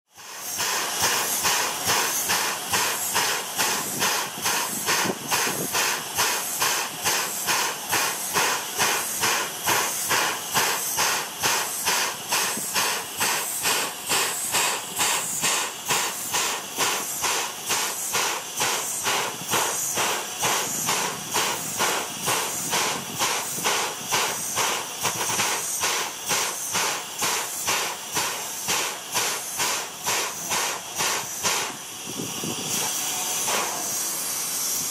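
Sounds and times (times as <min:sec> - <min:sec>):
pulsing steam hiss: 0:00.1 - 0:34.9.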